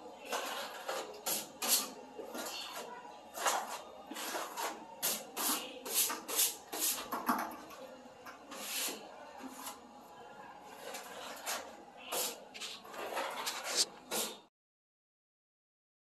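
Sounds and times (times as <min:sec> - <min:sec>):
trowel scraping filler: 0:00.2 - 0:07.1, 0:08.5 - 0:09.8, 0:10.7 - 0:14.5.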